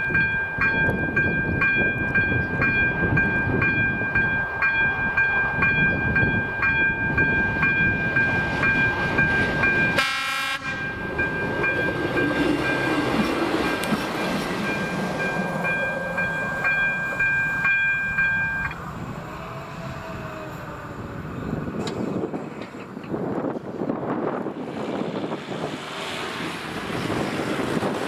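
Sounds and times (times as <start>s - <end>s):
level crossing warning bell: 0.0s - 19.1s
railcar engine and wheels rumbling: 0.0s - 28.0s
train horn blast: 10.0s - 10.9s.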